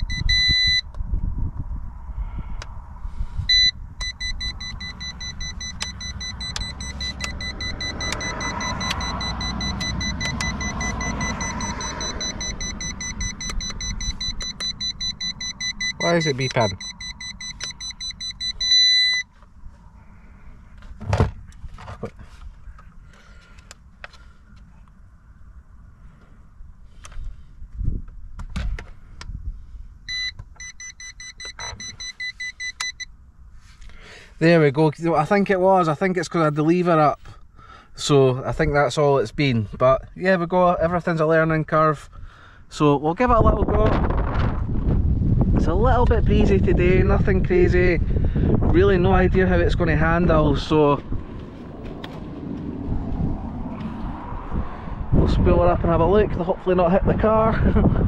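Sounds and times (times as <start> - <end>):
short electronic beep: 0.0 - 0.9, 3.5 - 19.3, 30.1 - 33.1
steady high-pitched tone: 3.5 - 19.3.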